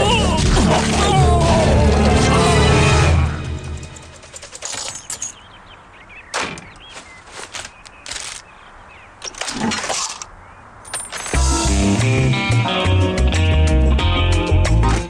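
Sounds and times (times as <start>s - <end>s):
cartoon cash register clacks: 3.9s - 5.4s
guitar music: 11.4s - 15.0s.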